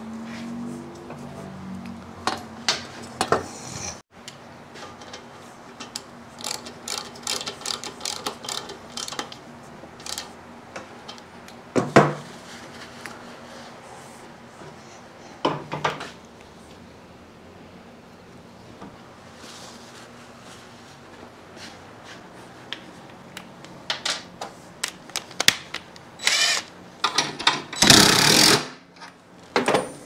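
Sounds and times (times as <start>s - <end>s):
ratchet wrench clicking: 6.4s - 9.3s, 10.0s - 10.3s.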